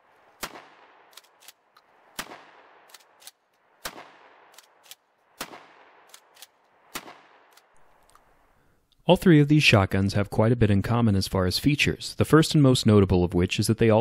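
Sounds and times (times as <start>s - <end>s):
shotgun shots: 0.0s - 7.8s
shotgun slide clacking: 0.4s - 8.3s.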